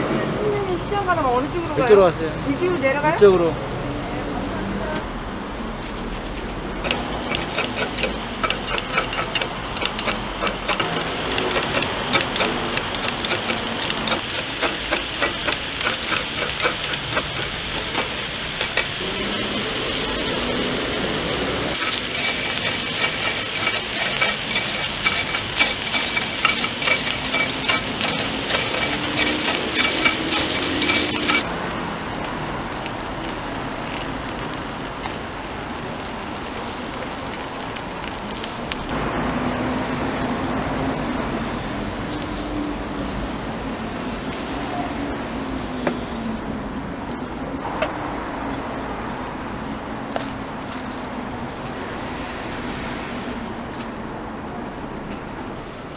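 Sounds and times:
oil sizzling and popping in pan: 6.8 - 42.3, 49.4 - 55.9.

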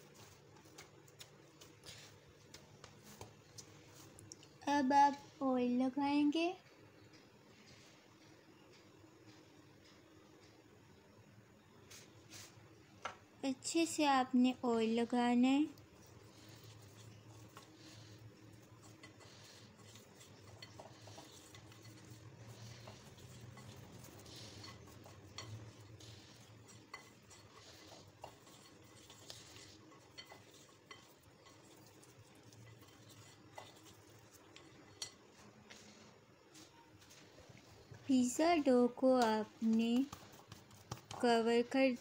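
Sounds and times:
fingers rubbing glass bowl: 16.3 - 35.0.

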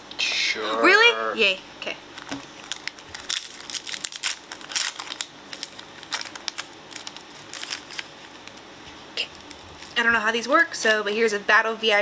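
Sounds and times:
foil wrapper tearing and crinkling: 2.1 - 8.7, 9.3 - 10.0.

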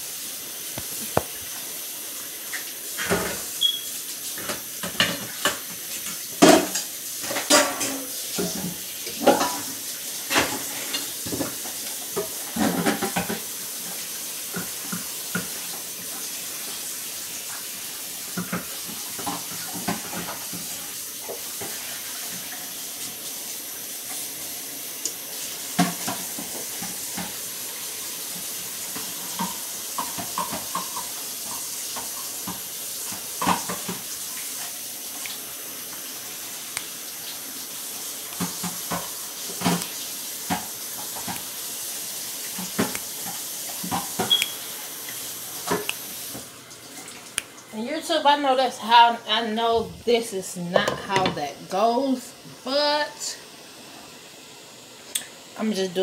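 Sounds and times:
steady hiss: 0.0 - 56.0
dishes and utensils clinking: 4.4 - 9.7, 42.6 - 44.6.

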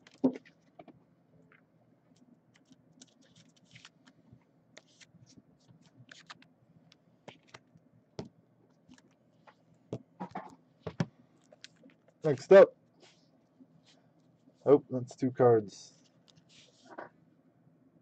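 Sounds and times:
plastic card sleeve clicks and rustles: 7.3 - 7.7.

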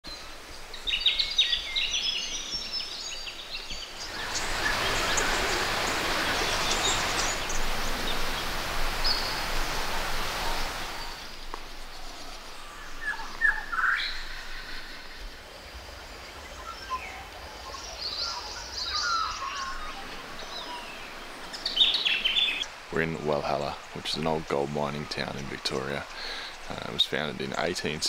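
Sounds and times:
birds chirping: 0.1 - 28.0
steady rushing noise: 3.9 - 13.1.

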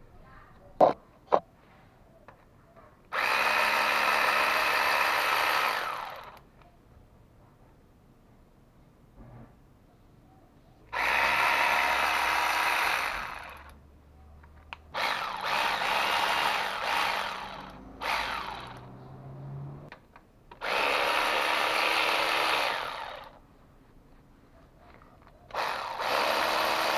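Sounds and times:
cordless power tool spinning bolts: 3.1 - 6.4, 11.0 - 13.8, 14.9 - 19.0, 20.5 - 23.4, 25.5 - 26.9.

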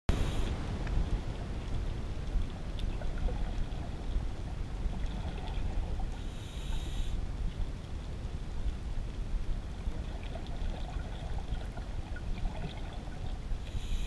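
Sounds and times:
underwater low rumble: 0.1 - 14.0
scuba regulator breath hiss: 6.2 - 7.2, 13.6 - 14.0.

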